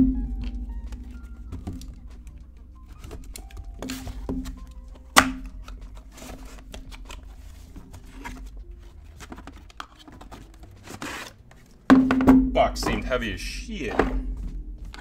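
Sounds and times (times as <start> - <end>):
cardboard scuffing and rustling: 1.5 - 11.8.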